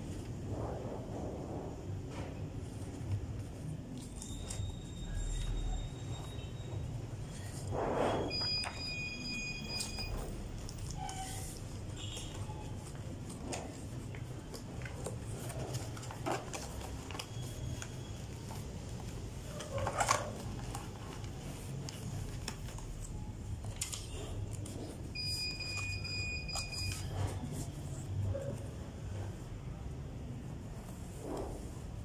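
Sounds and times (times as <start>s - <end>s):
rummaging in cardboard box: 9.8s - 23.1s.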